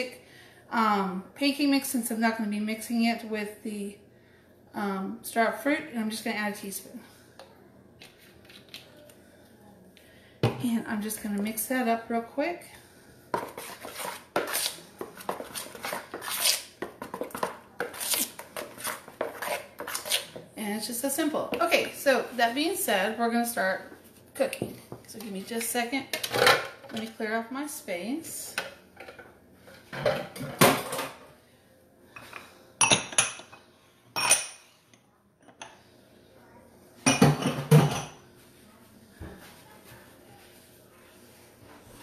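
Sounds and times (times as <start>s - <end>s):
batter stirred in a bowl: 13.3s - 20.5s
dishes and utensils clattering: 26.1s - 27.1s, 28.6s - 31.3s, 32.2s - 33.6s, 37.0s - 38.2s.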